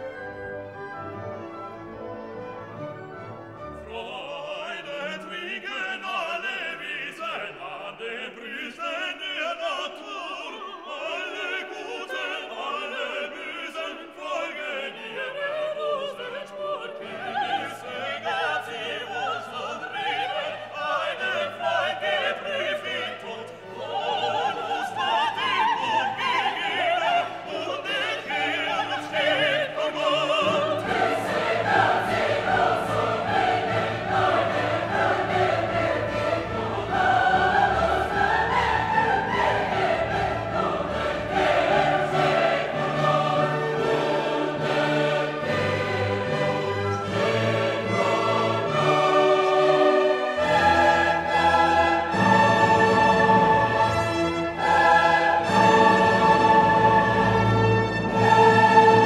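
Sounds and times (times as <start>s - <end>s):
orchestra playing: 0.0s - 5.6s, 23.3s - 59.0s
operatic singing voices: 3.8s - 59.0s.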